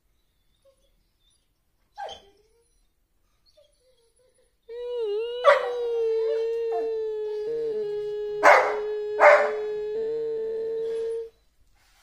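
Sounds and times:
dog howling: 0:04.7 - 0:11.4.

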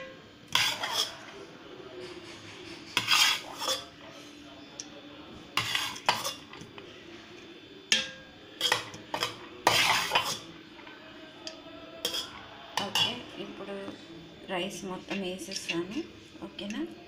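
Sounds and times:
metal utensil scraping steel pot: 0:00.5 - 0:01.2, 0:03.0 - 0:03.9, 0:05.6 - 0:06.6, 0:07.9 - 0:10.5, 0:12.0 - 0:13.3, 0:15.1 - 0:16.0.

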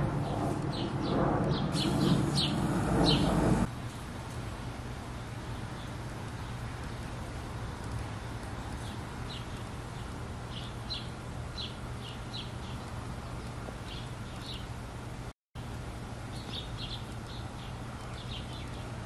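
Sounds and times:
low hum: 0:00.0 - 0:08.4
steady hiss: 0:01.7 - 0:13.4.

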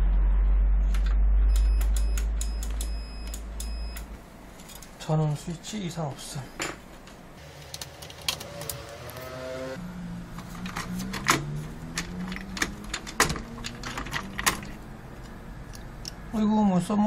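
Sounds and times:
low steady hum: 0:00.0 - 0:08.4.

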